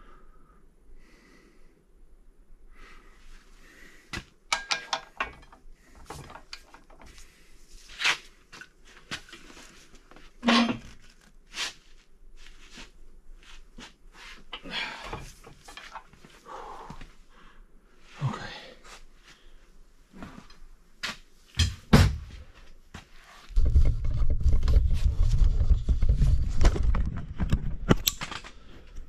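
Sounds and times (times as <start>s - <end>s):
metal tools clinking: 4.5s - 7.1s.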